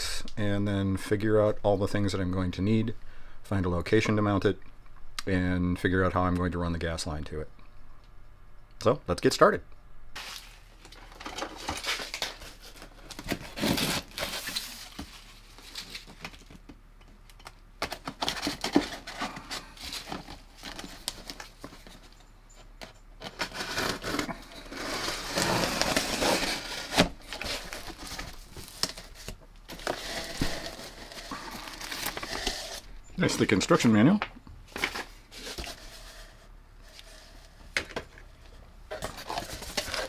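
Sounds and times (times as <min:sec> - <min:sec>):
cardboard box rustling and tearing: 0:11.6 - 0:16.2, 0:17.9 - 0:22.0, 0:23.2 - 0:32.8, 0:38.9 - 0:40.0
packing material crinkling: 0:23.2 - 0:33.8.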